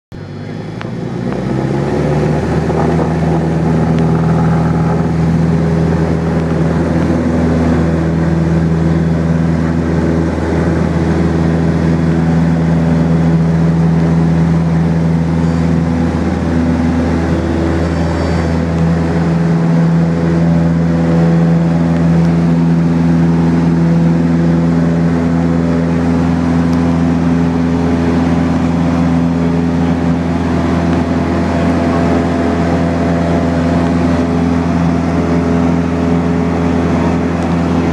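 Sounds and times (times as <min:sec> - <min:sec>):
light aircraft engine drone: 0:00.1 - 0:37.9.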